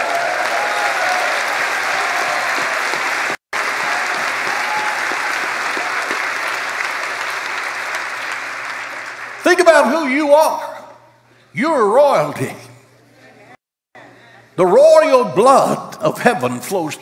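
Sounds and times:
crowd clapping: 0.0s - 10.1s.

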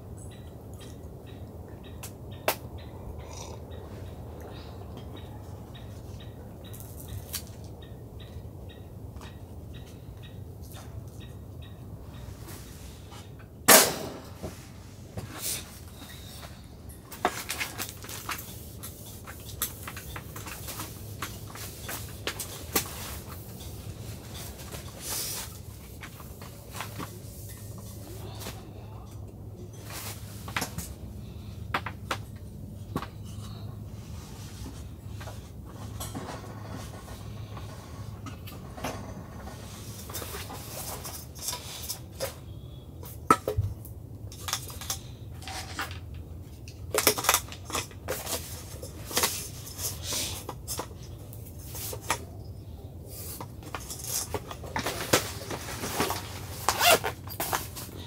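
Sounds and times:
steady low hum: 0.0s - 58.0s
camping gear knocks and clinks: 53.4s - 58.0s.

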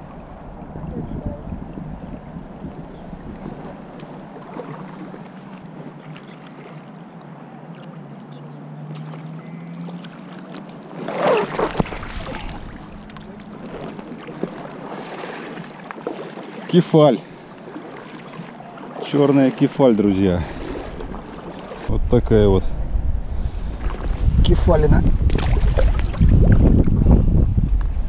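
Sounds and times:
moving water: 0.0s - 28.0s
wind: 0.0s - 28.0s
fish splashing: 3.3s - 6.8s, 8.8s - 19.6s, 20.4s - 21.9s, 25.2s - 26.3s.

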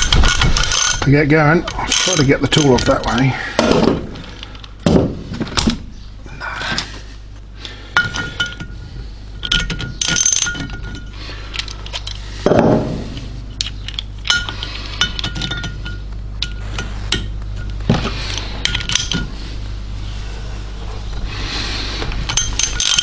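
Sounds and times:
metal clinks and taps: 13.6s - 17.8s.

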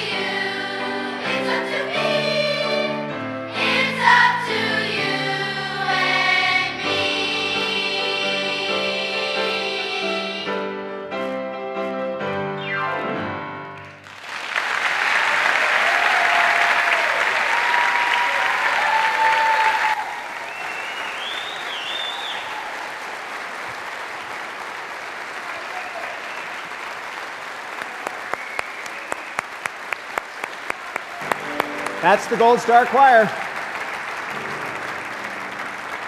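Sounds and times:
children's choir singing with piano: 0.0s - 11.6s
audience applause: 14.0s - 36.0s
cheers: 14.2s - 23.3s, 25.4s - 27.1s, 27.8s - 31.6s.

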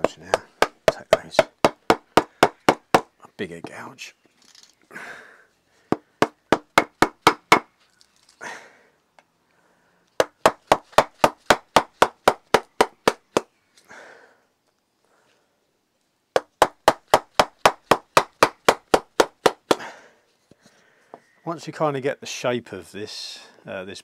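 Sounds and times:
mallet tapping gouge into wood: 0.0s - 3.1s.

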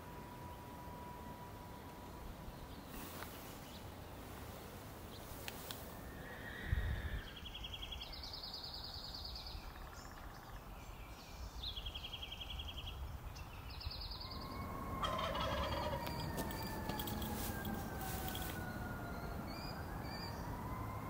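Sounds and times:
faint steady tone: 0.0s - 21.0s
owlets raspy begging calls: 14.3s - 19.4s.

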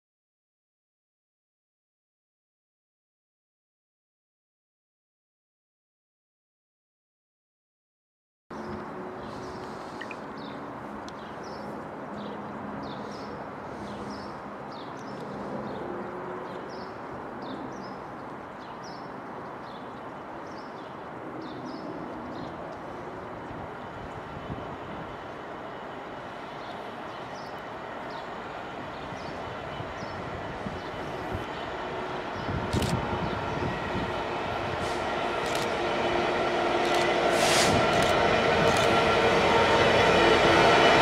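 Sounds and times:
distant freight train rumble: 21.0s - 41.0s.

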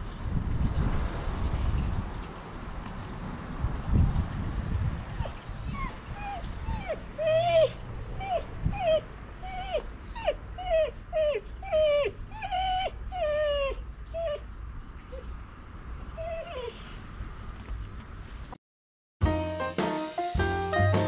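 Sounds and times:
dog whining: 4.8s - 14.5s, 16.1s - 17.0s.

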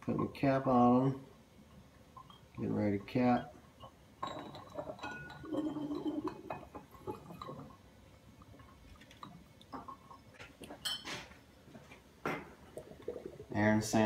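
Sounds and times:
glass bottles clinking: 2.2s - 7.8s, 9.2s - 11.3s.

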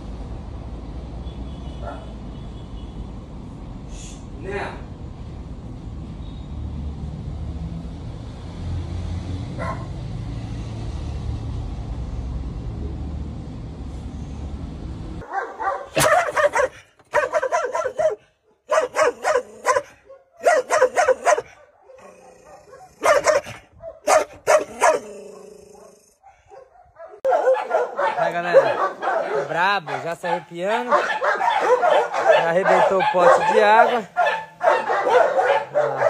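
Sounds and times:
dog barking aggressively: 15.2s - 36.0s.

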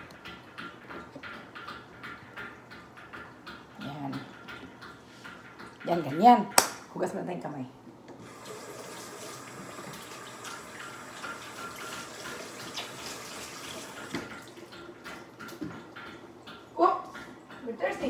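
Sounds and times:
tap water running over hands: 8.2s - 17.4s.

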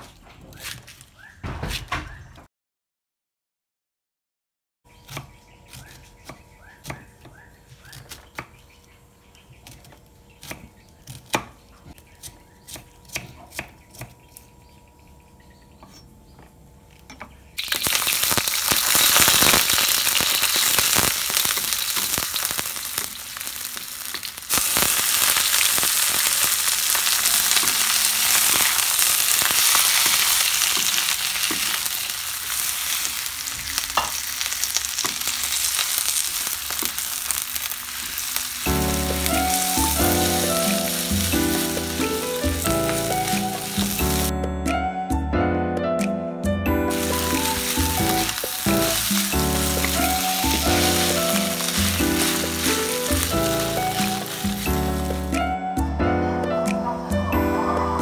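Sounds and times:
food sizzling in hot oil: 17.6s - 44.3s, 46.9s - 55.4s.

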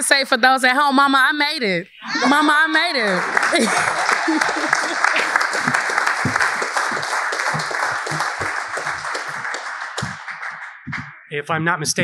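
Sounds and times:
audience applauding: 2.2s - 11.1s.

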